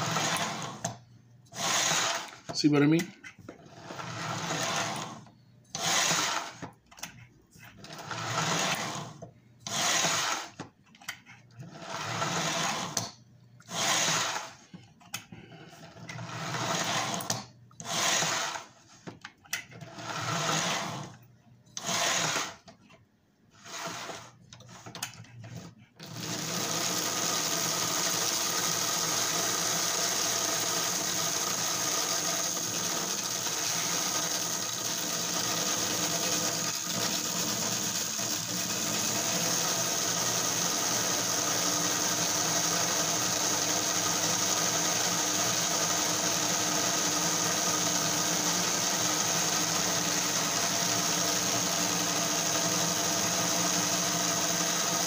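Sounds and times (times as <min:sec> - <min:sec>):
toy train motor whining: 0:03.8 - 0:06.6, 0:13.7 - 0:14.7, 0:16.1 - 0:18.8, 0:21.8 - 0:22.6, 0:23.5 - 0:24.4, 0:26.0 - 0:55.0.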